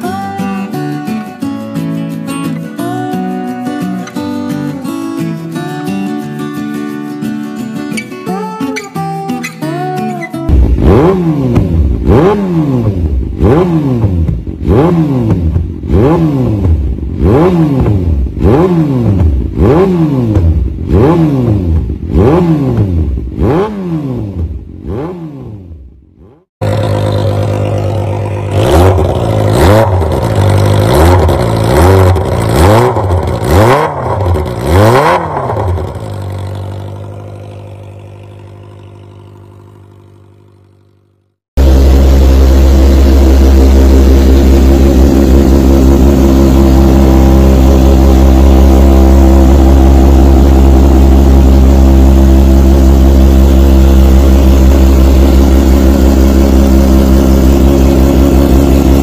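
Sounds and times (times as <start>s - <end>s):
motorcycle engine revving: 10.4s - 59.0s
motorcycle idling: 10.5s - 23.4s, 26.6s - 59.0s.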